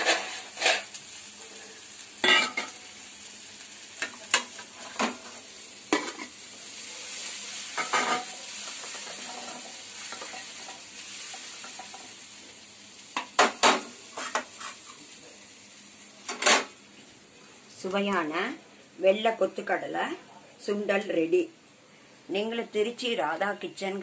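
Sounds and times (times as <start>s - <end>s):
chickpeas sizzling in a pan: 0.0s - 24.0s.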